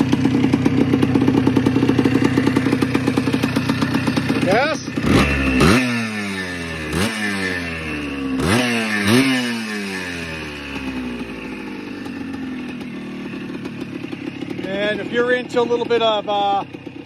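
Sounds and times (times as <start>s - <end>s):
two-stroke engine revving and idling: 0.0s - 17.0s.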